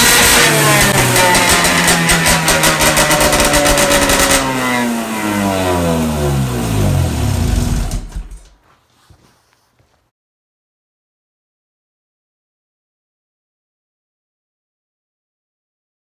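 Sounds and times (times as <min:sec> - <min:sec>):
snowmobile engine revving: 0:00.0 - 0:08.5.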